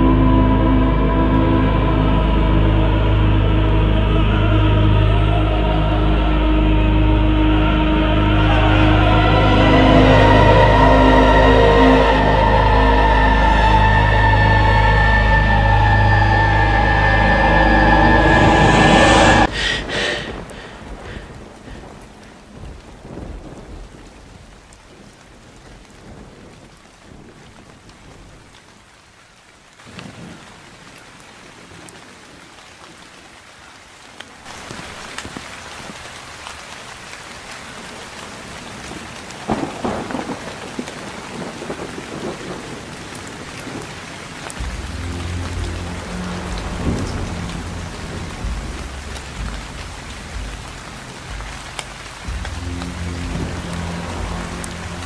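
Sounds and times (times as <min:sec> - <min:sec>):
background music with low notes: 0:00.0 - 0:19.5, 0:44.4 - 0:55.0
rainfall: 0:00.0 - 0:55.0
loud rumble of thunder: 0:18.1 - 0:24.5, 0:39.5 - 0:55.0.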